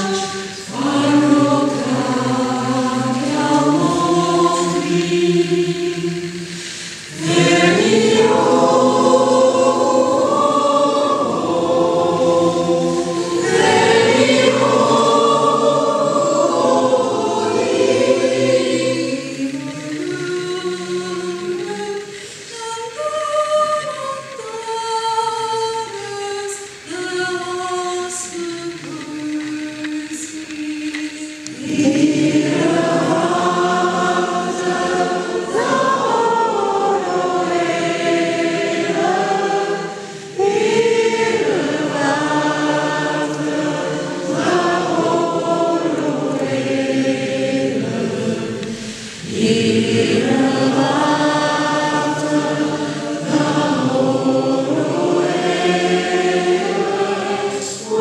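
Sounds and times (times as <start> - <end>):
a cappella choir singing: 0.0 - 58.0.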